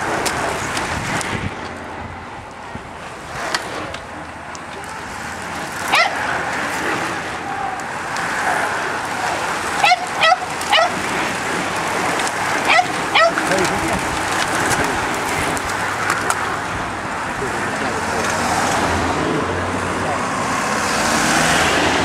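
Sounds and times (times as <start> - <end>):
racing bicycles whirring past: 0.0 - 22.0
dog barking: 5.9 - 6.2, 9.8 - 11.0, 12.7 - 13.5.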